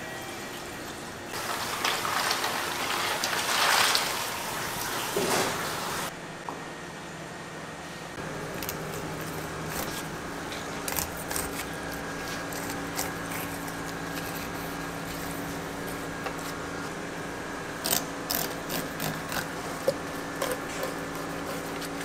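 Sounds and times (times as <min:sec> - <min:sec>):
mechanical hum: 0:00.0 - 0:22.0.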